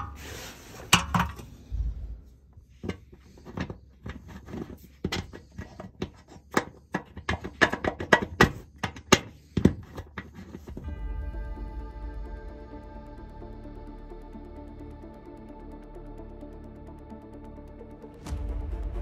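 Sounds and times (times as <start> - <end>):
clicks and knocks on sheet metal: 5.0 - 10.4
electronic background music: 10.8 - 19.0.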